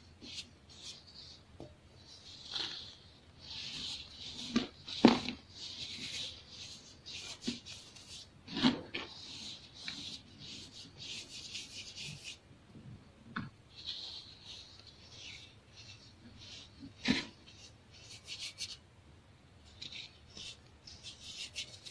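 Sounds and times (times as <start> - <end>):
powder sifting with crackly hiss: 2.0 - 12.4.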